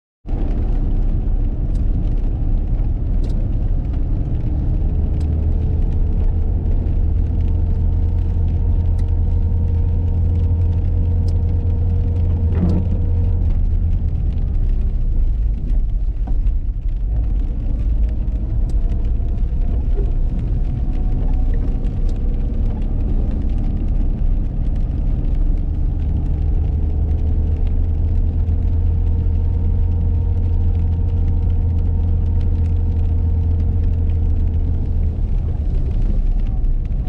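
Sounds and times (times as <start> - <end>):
car engine and road rumble: 0.2 - 37.0.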